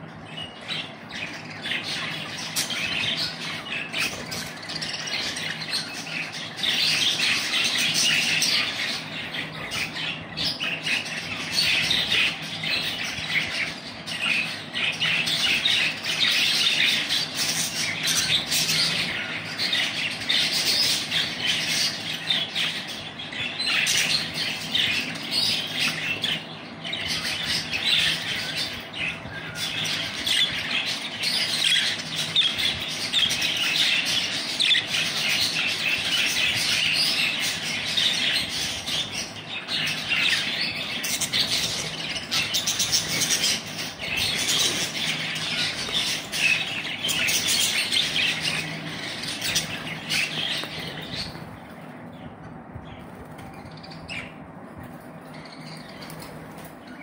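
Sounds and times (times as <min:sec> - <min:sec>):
budgerigars chattering: 0:00.0 - 0:54.4.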